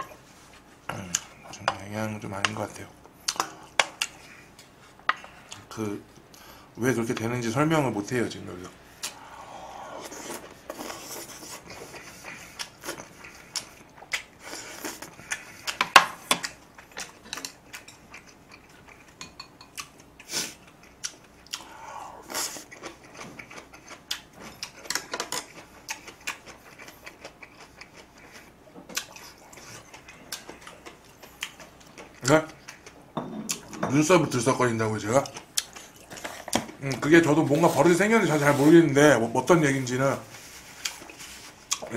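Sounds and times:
person chewing food: 0:03.1 - 0:05.7, 0:09.0 - 0:33.8, 0:34.9 - 0:37.1, 0:40.4 - 0:41.9.

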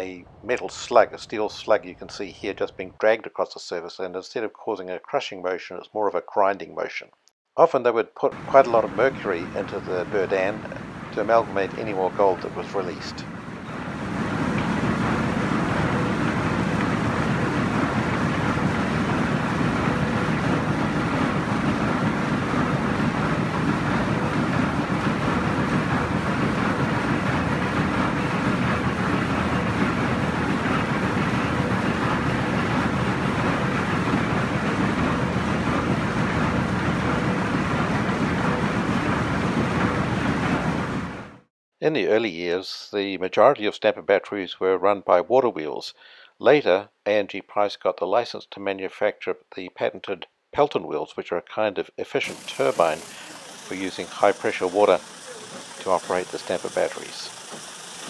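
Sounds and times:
stamper machinery clatter and rumble: 0:08.3 - 0:41.3, 0:52.3 - 0:58.0.

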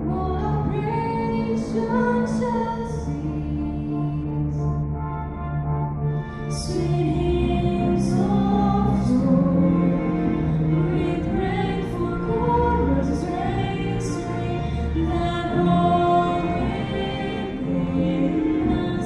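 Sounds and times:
girls' choir singing a carol: 0:06.5 - 0:19.0.

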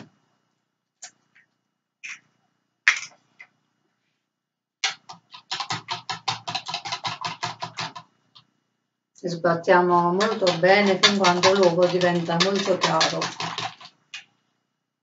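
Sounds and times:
fork beating eggs in a bowl: 0:04.8 - 0:08.0, 0:10.0 - 0:14.0.

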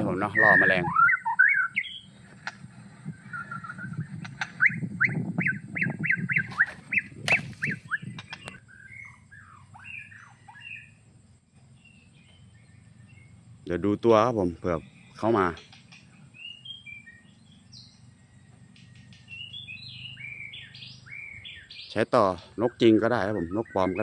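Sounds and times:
bird chirps: 0:00.0 - 0:24.0
songbird whistled notes: 0:00.1 - 0:02.2, 0:03.1 - 0:11.0, 0:14.8 - 0:22.0.

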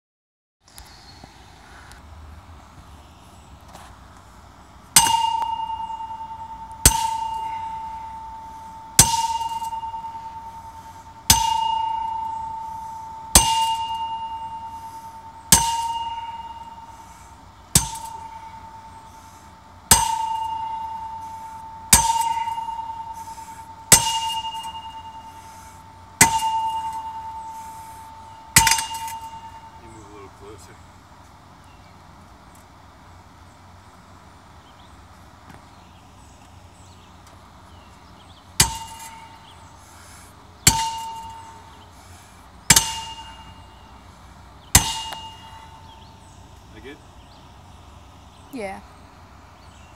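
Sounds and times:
sledgehammer clanging on steel post: 0:04.9 - 0:30.2, 0:38.6 - 0:44.0, 0:44.6 - 0:46.9
steel post ringing: 0:04.9 - 0:30.6, 0:38.6 - 0:47.0.

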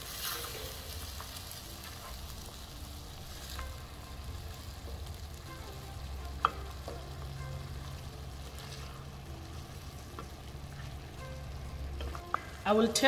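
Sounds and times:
curry simmering and sizzling: 0:00.0 - 0:13.0
wooden spoon stirring: 0:06.2 - 0:13.0.

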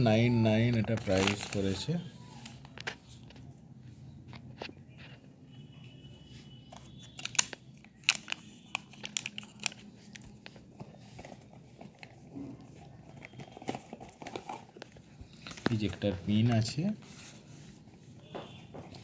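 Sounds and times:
plastic bag crinkling: 0:00.7 - 0:02.1, 0:07.2 - 0:10.6.

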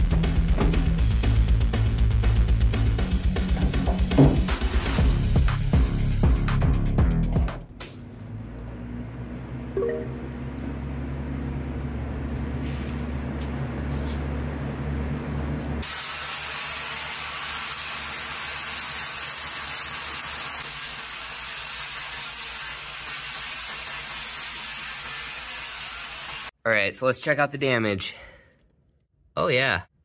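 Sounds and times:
angle grinder grinding metal: 0:15.8 - 0:26.5.

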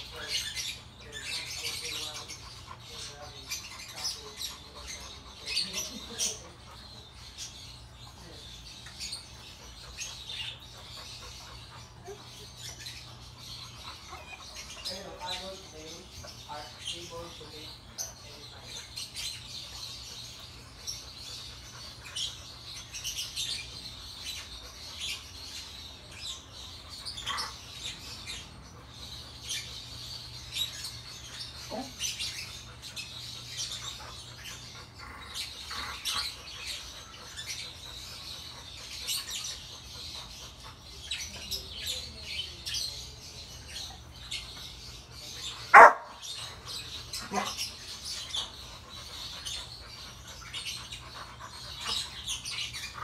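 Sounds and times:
small birds chirping: 0:00.0 - 0:53.0
dog barking: 0:45.7 - 0:46.2.

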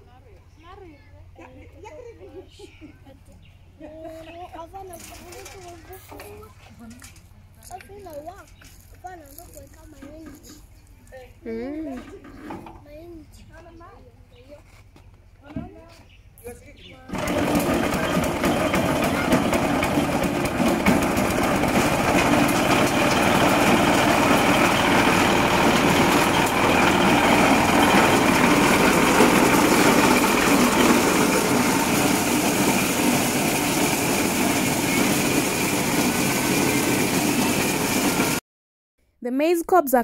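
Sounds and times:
recoil starter pull: 0:17.1 - 0:38.4
small stationary engine running: 0:17.1 - 0:38.4.

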